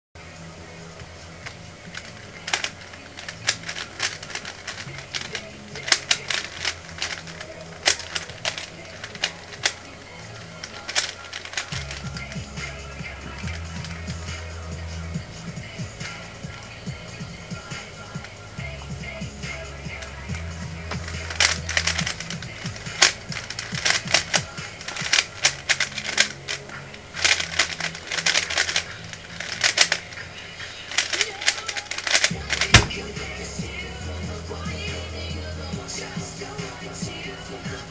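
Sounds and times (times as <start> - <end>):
plastic snaps: 1.4 - 14.4, 19.4 - 33.4
puzzle cube layers clicking: 1.9 - 14.2, 19.5 - 33.2.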